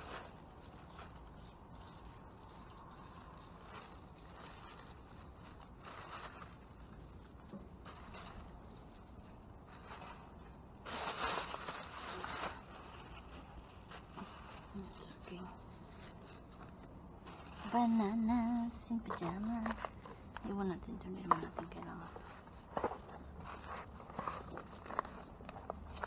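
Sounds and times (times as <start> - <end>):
trash rustling and scraping: 0.0 - 20.4, 21.2 - 26.0.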